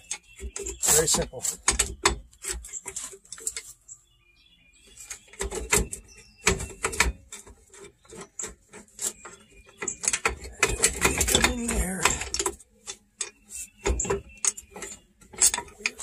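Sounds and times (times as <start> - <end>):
bird chirping: 0.0 - 16.0
metallic tool clicks and knocks: 9.8 - 16.0.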